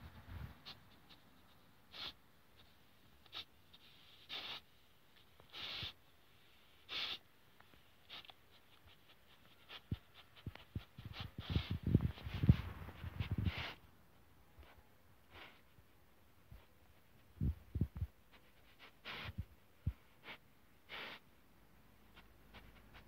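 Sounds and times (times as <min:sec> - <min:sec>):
puppy sniffing: 0:00.6 - 0:06.0, 0:06.7 - 0:07.3, 0:08.0 - 0:13.9, 0:14.6 - 0:15.8, 0:18.2 - 0:21.4.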